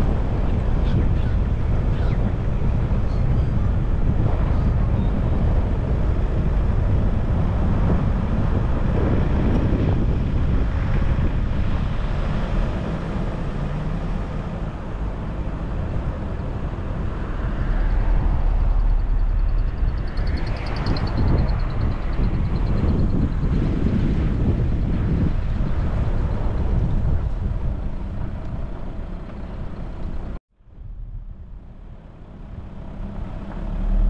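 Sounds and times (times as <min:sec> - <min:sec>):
car driving rumble: 0:00.0 - 0:34.0
wind buffeting microphone: 0:00.0 - 0:34.0.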